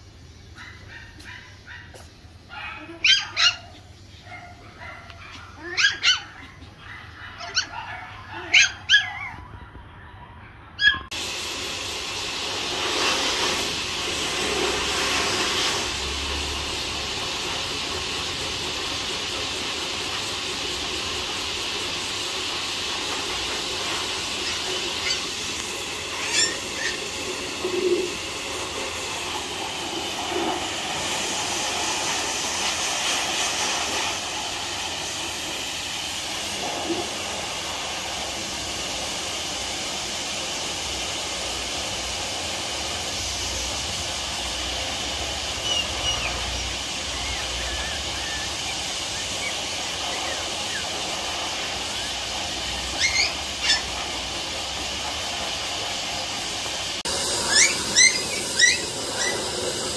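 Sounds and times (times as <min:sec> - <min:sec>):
puppies yapping: 0:00.5 - 0:11.2, 0:23.9 - 0:28.2, 0:45.4 - 0:54.3, 0:57.3 - 0:59.9
steady hiss: 0:11.2 - 0:59.9.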